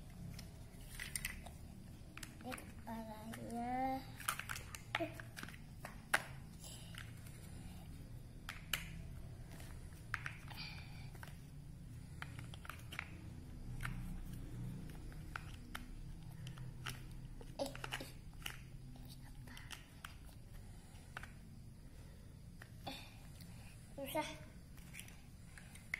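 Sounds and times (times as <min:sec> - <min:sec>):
plastic toy bricks clicking: 0:00.3 - 0:07.4, 0:08.4 - 0:11.4, 0:12.1 - 0:20.4.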